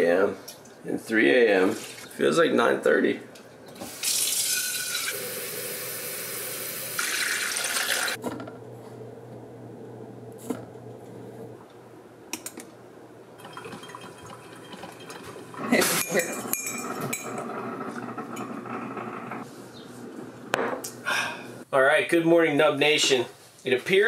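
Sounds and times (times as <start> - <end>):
kitchen tap running: 3.9 - 8.2, 13.4 - 16.2.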